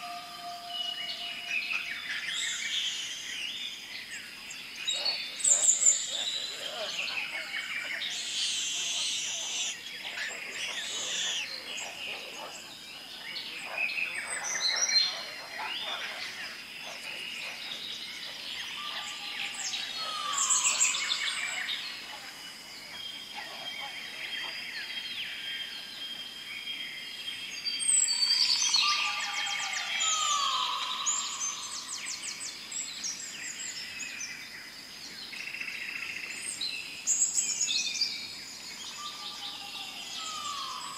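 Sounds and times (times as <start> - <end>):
birds chirping and calling: 0.0 - 25.5, 27.8 - 34.1.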